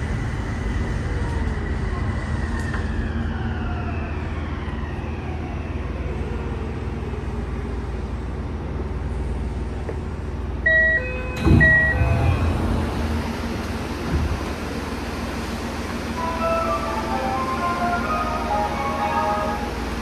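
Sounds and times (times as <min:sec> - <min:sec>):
door chime: 0:10.7 - 0:12.4
electric train braking rumble: 0:10.7 - 0:20.0
train doors opening thump: 0:11.4 - 0:14.8.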